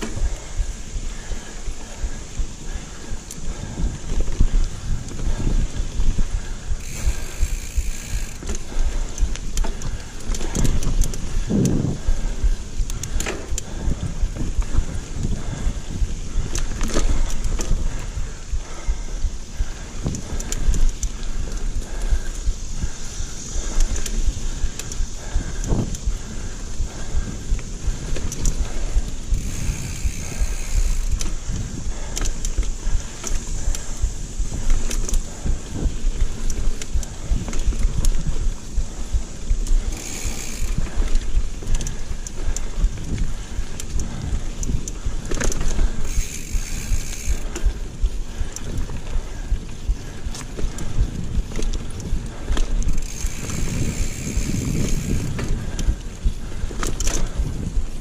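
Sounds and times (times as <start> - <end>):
bicycle freewheel ratchet buzzing: 0.0 - 58.0
bike frame rattles and clicks: 0.0 - 58.0
tyre and wind rumble: 0.0 - 58.0.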